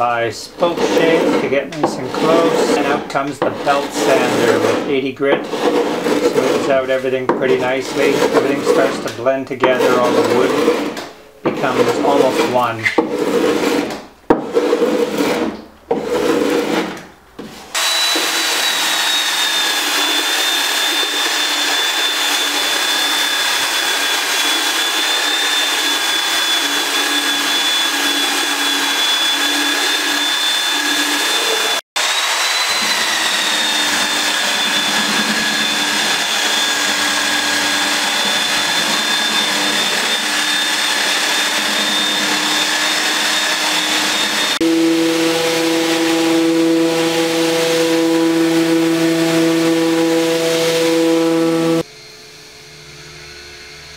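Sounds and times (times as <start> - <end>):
electric belt sander on wood: 0.0 - 16.8, 17.7 - 53.9
spokeshave shaving wood: 0.0 - 17.0, 17.7 - 51.9
electric power planer whining: 17.7 - 53.9.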